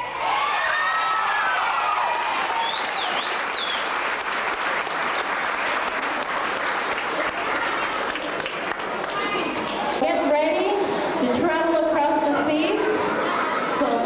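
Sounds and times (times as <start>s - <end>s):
audience applauding: 0.2s - 10.0s
warbling whistle: 2.6s - 3.9s.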